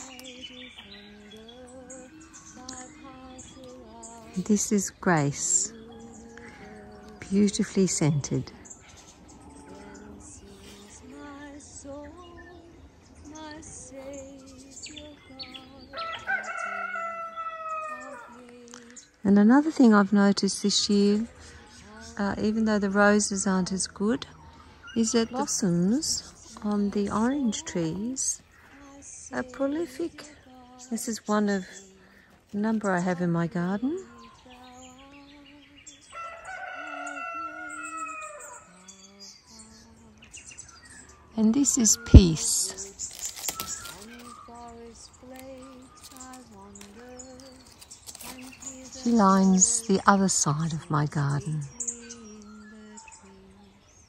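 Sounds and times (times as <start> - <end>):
small birds chirping: 0.0 - 54.0
rooster crowing: 15.9 - 18.4, 36.0 - 38.9.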